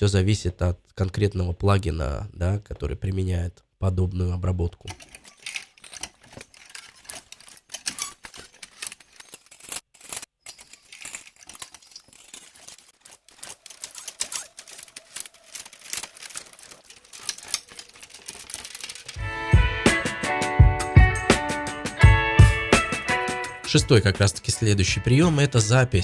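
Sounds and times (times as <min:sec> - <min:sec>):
metallic clicking and clattering: 0:04.9 - 0:19.2
plucked guitar music: 0:19.2 - 0:23.7.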